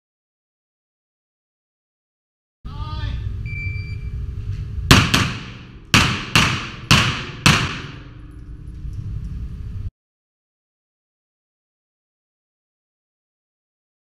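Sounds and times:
electronic timer beep: 3.4s - 4.2s
pistol shots echoing indoors: 4.9s - 8.2s.

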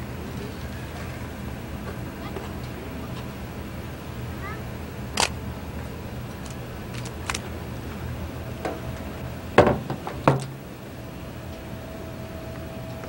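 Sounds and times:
low hum: 0.0s - 13.0s
sharp knocks: 9.6s - 10.7s.

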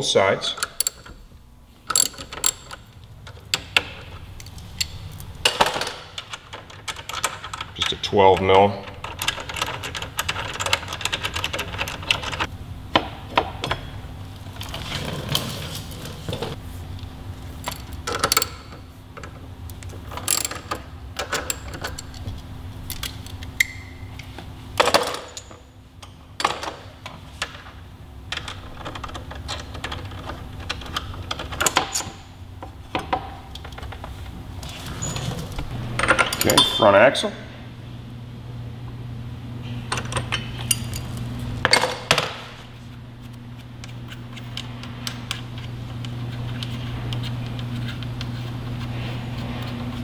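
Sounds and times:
socket ratchet clicking: 1.9s - 2.8s.

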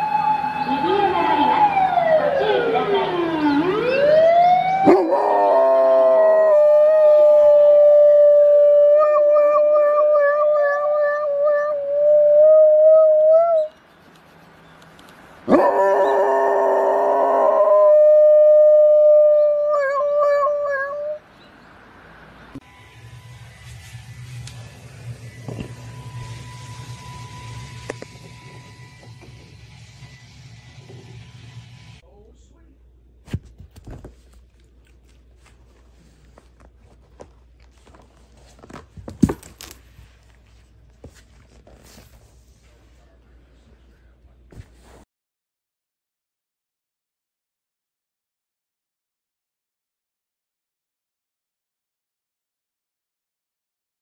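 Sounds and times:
dog howling: 4.8s - 13.7s, 15.5s - 21.2s.

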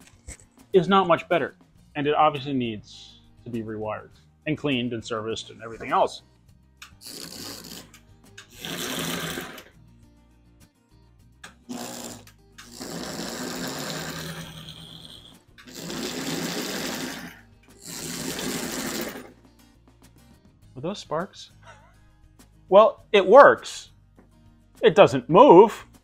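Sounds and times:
toy train motor whirring: 6.8s - 9.7s, 11.7s - 19.3s.

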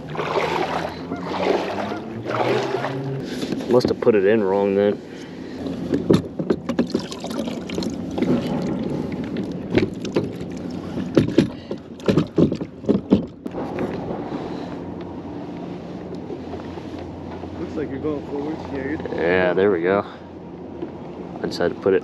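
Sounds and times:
kayak pedal drive knocking: 11.0s - 13.6s.

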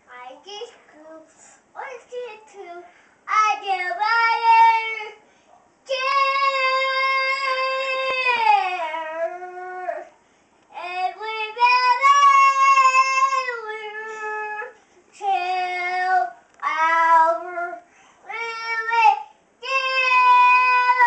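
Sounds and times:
boy singing opera-style: 5.9s - 10.1s, 10.7s - 21.0s.

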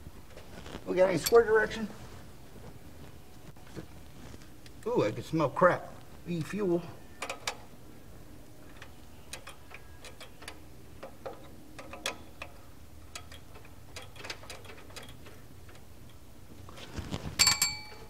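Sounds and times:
light clicks of handled parts: 8.6s - 18.0s
sharp ringing metal clink: 17.4s - 18.0s.

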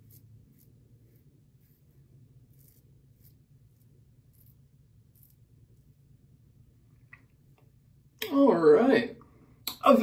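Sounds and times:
razor scraping stubble: 0.0s - 5.9s.

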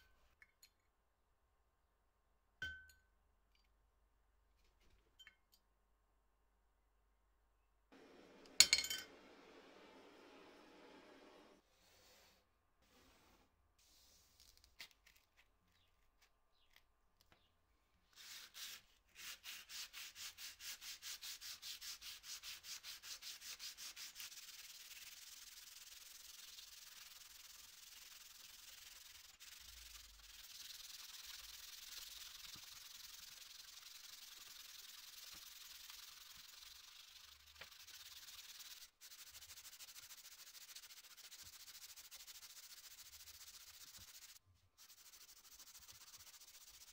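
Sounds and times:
sandpaper rubbing on metal: 18.2s - 46.9s.

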